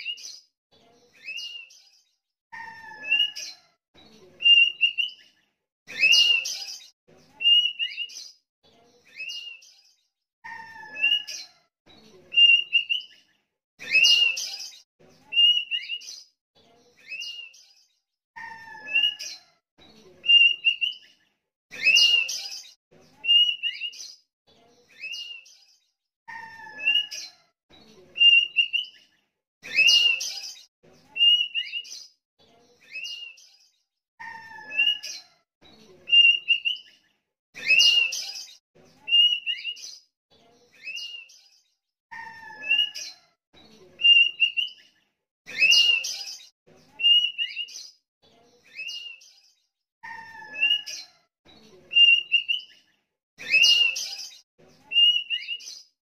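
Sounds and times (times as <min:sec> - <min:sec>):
bird whistled chirps: 0:47.0 - 0:47.7, 0:50.5 - 0:50.9, 0:54.9 - 0:55.6.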